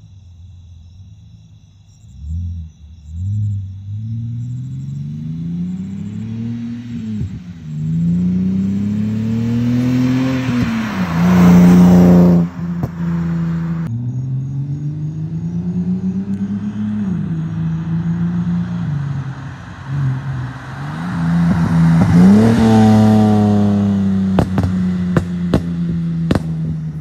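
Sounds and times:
car engine revving driving past: 2.1 - 27.0.

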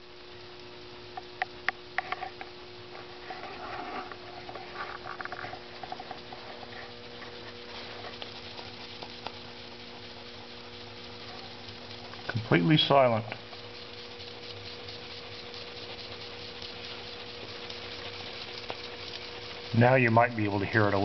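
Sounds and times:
steady hum: 0.0 - 21.0
faint irregular clicks: 0.3 - 2.6, 4.0 - 21.0.

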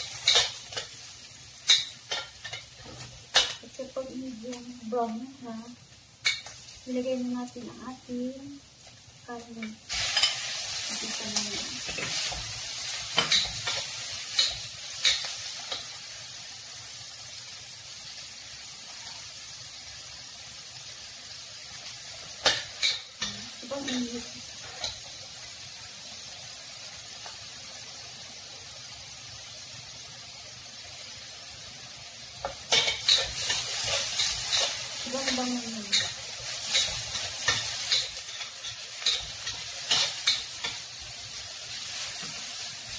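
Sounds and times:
meat frying in wok: 0.0 - 42.9
metal spatula scraping wok: 9.9 - 15.9, 32.4 - 41.1.

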